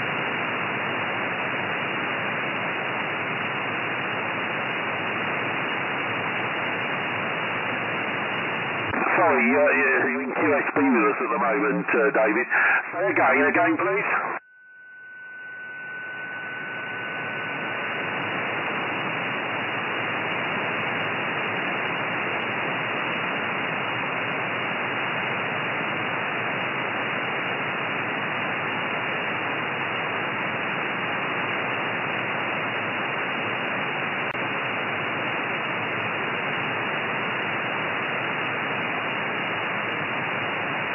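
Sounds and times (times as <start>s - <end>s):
radio static hiss: 0.0s - 14.4s, 15.3s - 40.9s
faint steady tone: 12.8s - 40.9s.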